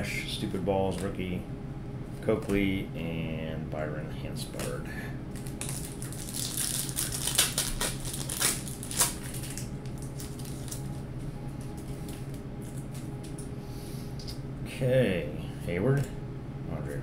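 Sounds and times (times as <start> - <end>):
wrapper crinkling and tearing: 5.3 - 11.0.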